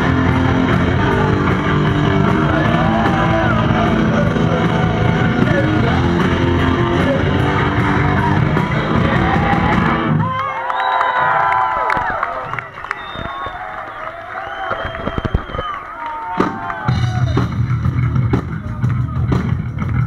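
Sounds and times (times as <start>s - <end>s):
distorted electric guitars: 0.0s - 10.3s, 16.4s - 20.0s
shouted vocals: 0.0s - 15.0s
crowd cheering and shouting: 0.0s - 20.0s
drums: 0.0s - 20.0s.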